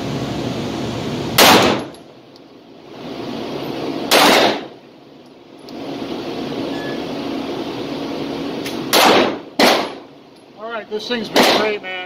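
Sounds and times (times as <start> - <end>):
steady low hum: 0.0 - 12.0
pistol shots: 1.4 - 1.9, 4.1 - 4.8, 8.7 - 10.1, 11.3 - 11.8.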